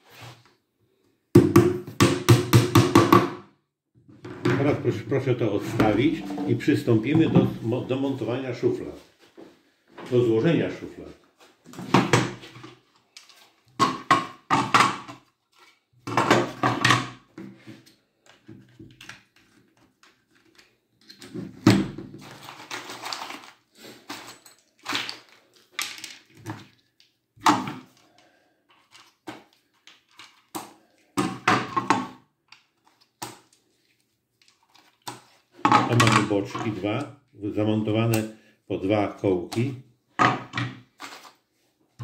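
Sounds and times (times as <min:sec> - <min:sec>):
wooden dowels handled: 0:05.6 - 0:08.2, 0:11.1 - 0:21.6, 0:22.2 - 0:37.1, 0:39.4 - 0:42.0.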